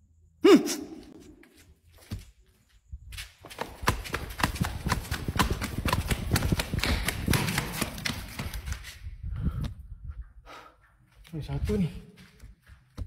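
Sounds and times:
quick footsteps on hard floor: 1.4 - 9.7, 11.0 - 13.0.

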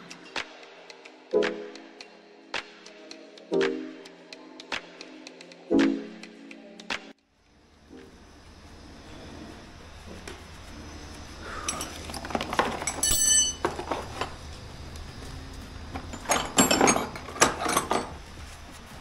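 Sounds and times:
hard objects clattering: 11.5 - 14.5, 15.9 - 18.3
short metallic ring: 13.0 - 13.6.

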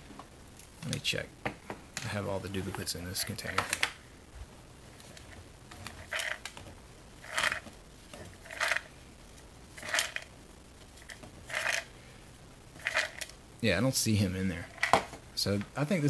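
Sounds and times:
plastic toys rattling in a container: 5.8 - 6.5, 7.2 - 7.6, 8.2 - 8.9, 9.8 - 10.3, 11.0 - 11.9, 12.8 - 13.3, 14.7 - 15.0.

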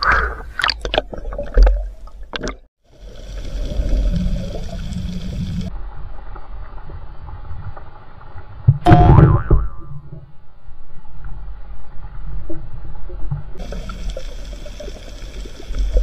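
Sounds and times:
underwater water rush: 0.6 - 8.7, 13.6 - 16.0.

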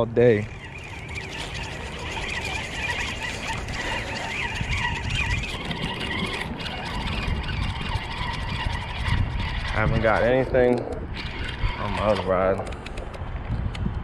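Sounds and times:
fishing reel gears whirring: 0.0 - 13.2.

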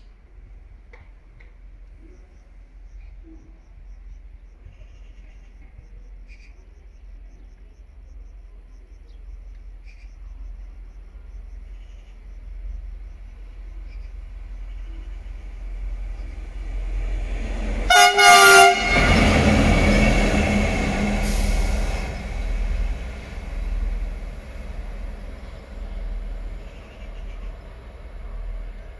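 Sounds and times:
locomotive engine and wheels passing: 12.4 - 28.9
locomotive horn blasts: 17.9 - 22.1.

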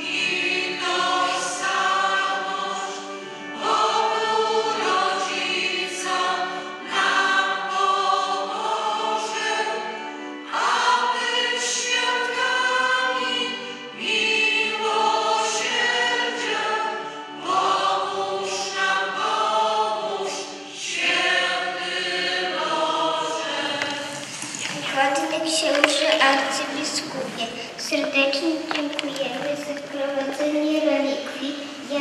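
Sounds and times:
group singing a hymn: 0.0 - 24.8.

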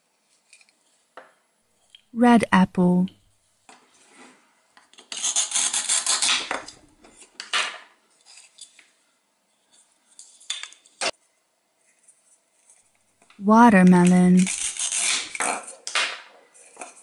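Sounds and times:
velcro tearing apart: 5.1 - 6.5, 14.5 - 15.7.

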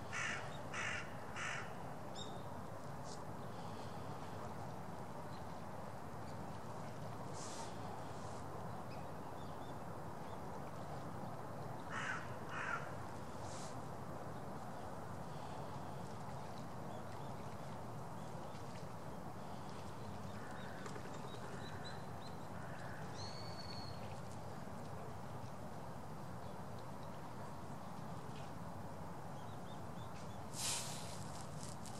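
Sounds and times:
outdoor background hiss: 0.0 - 31.9
harsh crow-like bird calls: 0.1 - 1.8, 11.9 - 13.0, 22.6 - 23.3.

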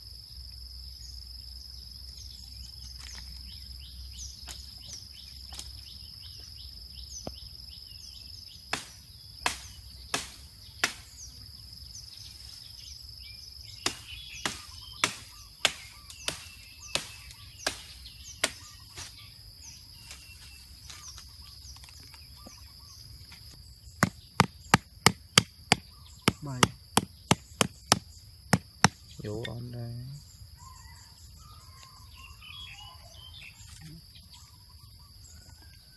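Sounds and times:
high insect drone: 0.0 - 35.8
machete chopping pole: 8.7 - 11.1, 13.8 - 19.1, 24.0 - 29.0.

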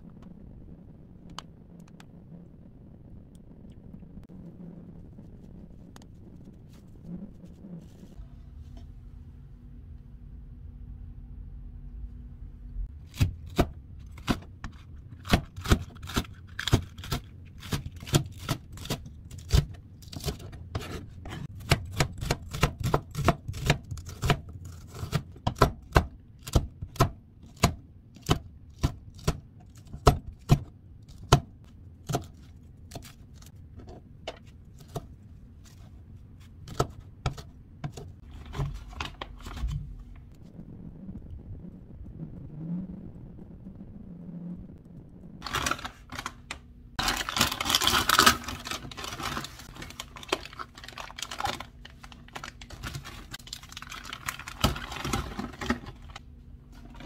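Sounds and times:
knife chopping on plastic board: 13.1 - 33.1.

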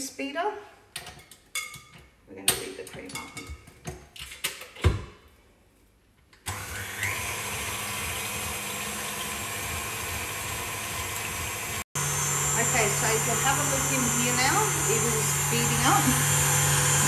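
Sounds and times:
stand mixer motor running: 6.5 - 17.0
whisk beating cream: 7.2 - 17.0.

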